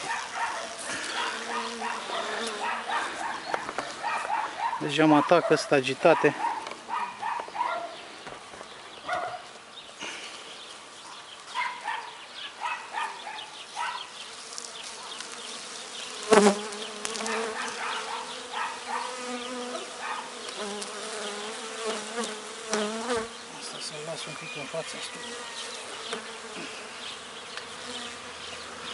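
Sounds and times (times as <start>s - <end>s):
bee humming close by: 0.0s - 4.1s, 14.1s - 28.9s
honeybees buzzing: 0.0s - 28.9s.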